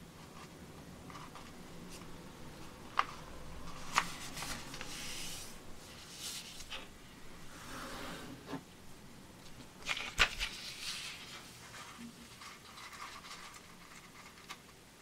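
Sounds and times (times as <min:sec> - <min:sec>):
paper rustling: 0:02.9 - 0:06.9, 0:09.5 - 0:14.7.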